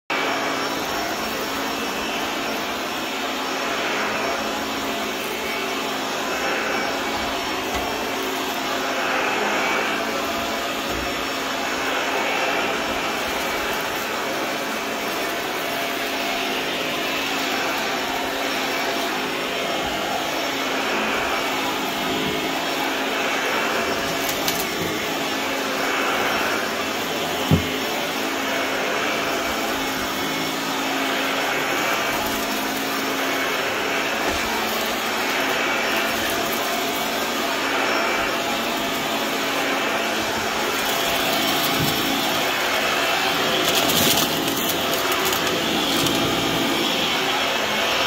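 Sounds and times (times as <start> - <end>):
vacuum cleaner running on carpet: 0.0 - 48.0.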